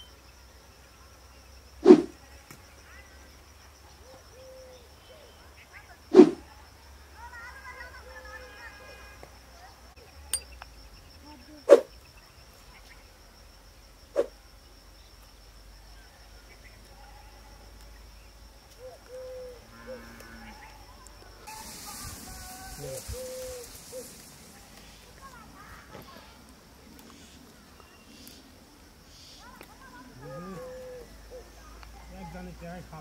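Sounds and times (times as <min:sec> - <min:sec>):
rustling hiss: 0:01.7 - 0:02.4, 0:05.9 - 0:06.5, 0:21.2 - 0:33.0.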